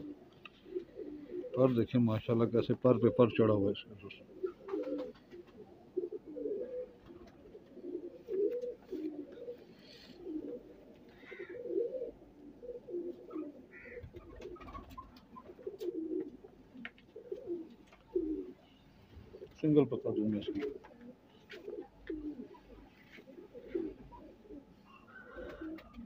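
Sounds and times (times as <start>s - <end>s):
pigeons cooing: 0.0s - 26.0s.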